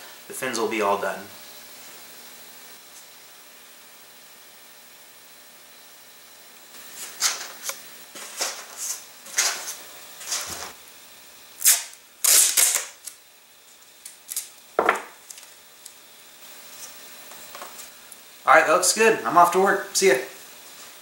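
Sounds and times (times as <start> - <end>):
masking tape ripping: 11.6 - 13.2, 14.0 - 14.6.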